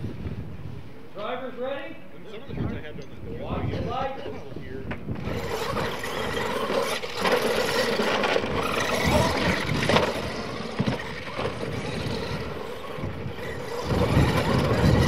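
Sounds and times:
trucks landing knocks: 4.9 - 15.0
tyres on dirt: 4.9 - 15.0
toy truck motors whirring: 5.1 - 15.0.

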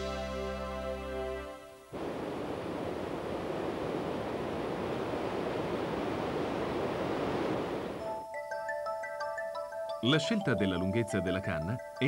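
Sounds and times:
soft music: 0.0 - 2.0, 8.0 - 12.0
river water cascading: 1.6 - 8.0.

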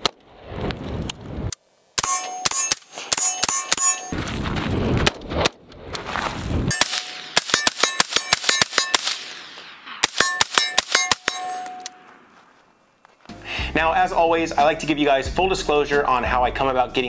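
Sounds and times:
steel targets clanging: 2.0 - 4.4, 6.7 - 12.2
rapid rifle shots: 6.7 - 11.6.

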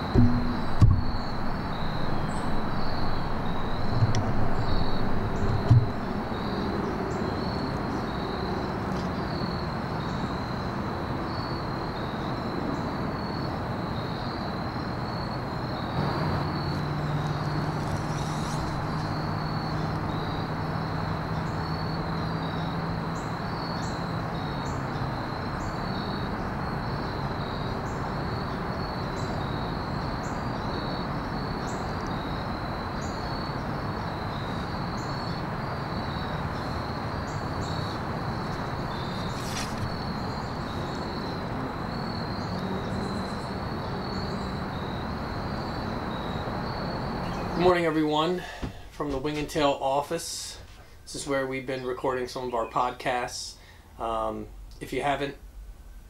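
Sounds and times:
low knocks: 0.0 - 6.6
low steady hum: 0.0 - 7.2
insects trilling: 0.0 - 54.7
outdoor hiss: 36.3 - 40.9, 47.2 - 56.0.

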